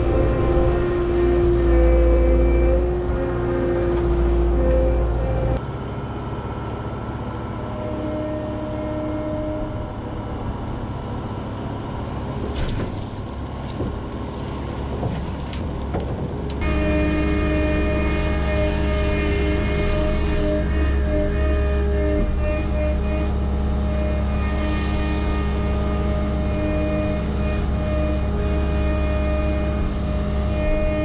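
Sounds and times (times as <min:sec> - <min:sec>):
diesel engine running: 0:00.0 - 0:31.0
clunks and thuds: 0:12.4 - 0:14.2.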